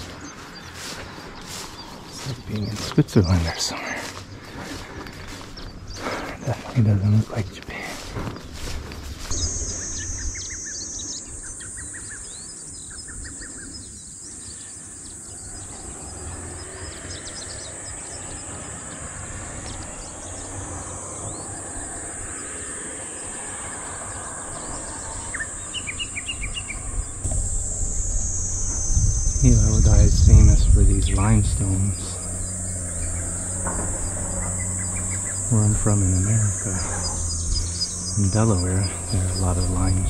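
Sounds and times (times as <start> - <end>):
high-pitched insect chorus: 0.0 - 40.0
low steady rumble: 17.8 - 40.0.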